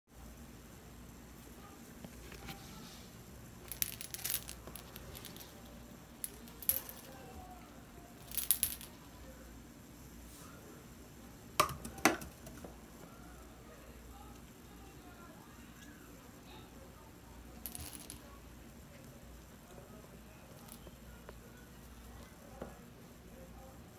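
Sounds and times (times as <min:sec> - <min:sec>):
cat toy clinking and rattling: 0:03.6 - 0:07.4.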